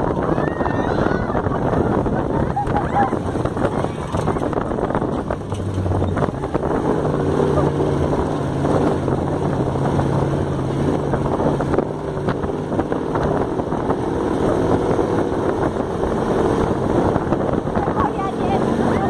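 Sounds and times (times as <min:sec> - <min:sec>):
dune buggy engine running: 0:00.0 - 0:19.0
wind buffeting microphone: 0:00.0 - 0:19.0.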